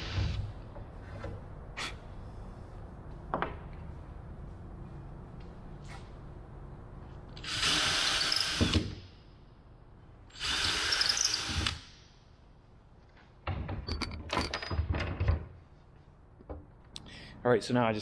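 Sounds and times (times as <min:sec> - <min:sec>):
cordless drill boring into wood: 0:07.4 - 0:08.9, 0:10.4 - 0:11.8.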